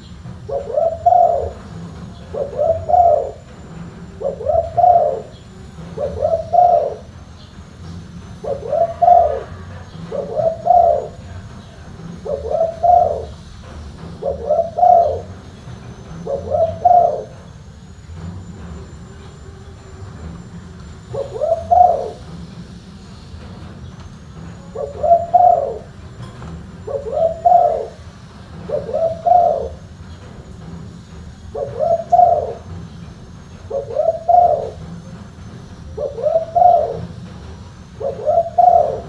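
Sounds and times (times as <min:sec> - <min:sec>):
dove cooing: 0:00.0 - 0:07.4, 0:08.3 - 0:11.5, 0:12.1 - 0:17.6, 0:21.0 - 0:22.3, 0:24.5 - 0:26.1, 0:26.7 - 0:30.0, 0:31.5 - 0:32.7, 0:33.6 - 0:35.0, 0:35.9 - 0:37.2, 0:37.9 - 0:39.0.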